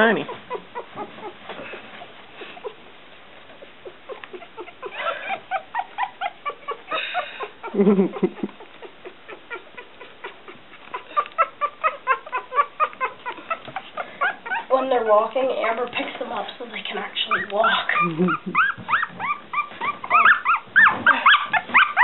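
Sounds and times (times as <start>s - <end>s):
puppies squeaking and squealing: 0.0s - 22.0s
puppy lower cry: 8.9s - 14.8s, 17.3s - 22.0s.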